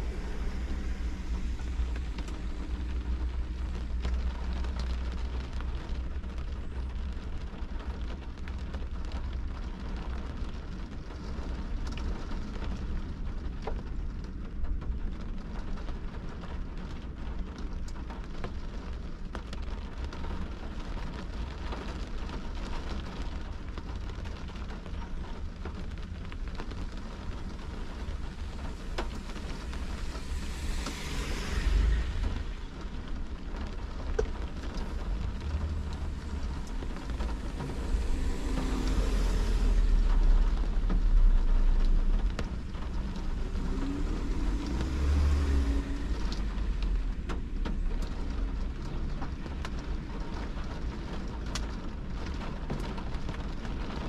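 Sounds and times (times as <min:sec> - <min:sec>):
vehicle passing: 0:00.0 - 0:04.2, 0:28.0 - 0:33.8, 0:34.6 - 0:48.2
constant low rumble: 0:00.0 - 0:54.0
rain on car windshield: 0:00.0 - 0:54.0
raindrop clicks: 0:00.1 - 0:54.0.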